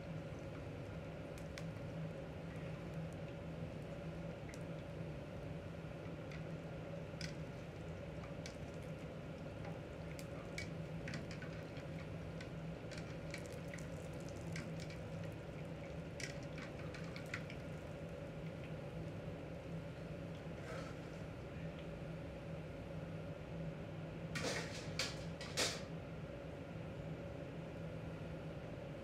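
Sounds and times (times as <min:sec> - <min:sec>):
steady low hum: 0:00.0 - 0:29.0
pops and ticks in a pot: 0:00.5 - 0:02.0, 0:07.1 - 0:17.7.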